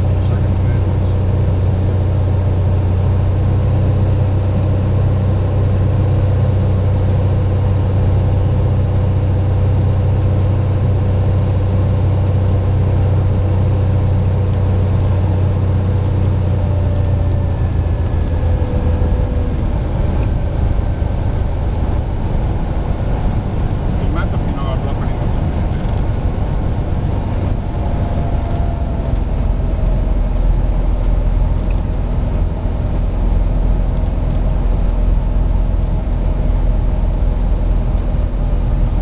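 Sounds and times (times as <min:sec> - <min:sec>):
aircraft engine droning in cabin: 0:00.0 - 0:39.0.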